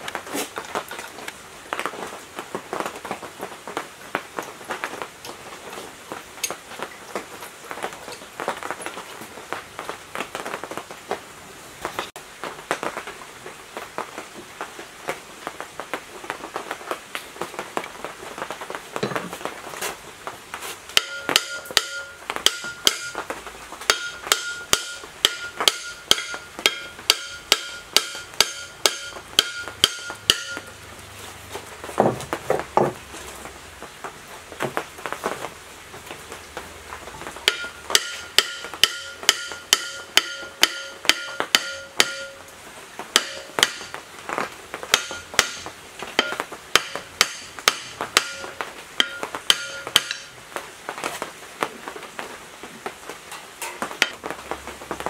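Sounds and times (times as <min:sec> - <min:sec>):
hammer striking metal: 0:21.0 - 0:23.2, 0:23.9 - 0:30.7, 0:37.4 - 0:42.5, 0:43.2 - 0:44.0, 0:44.9 - 0:50.3.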